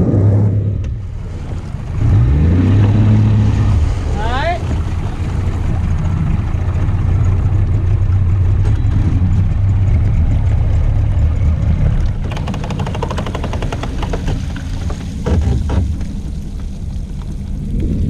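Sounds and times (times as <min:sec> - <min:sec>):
pickup truck engine rumble: 0:00.0 - 0:18.0
fast ticking or rattling: 0:12.2 - 0:15.7.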